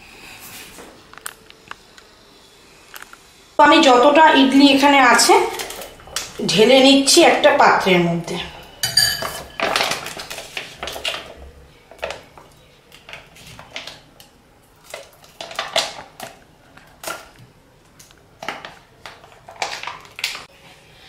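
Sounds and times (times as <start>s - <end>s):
spoon clinking against glass bowl: 8.8s - 9.7s.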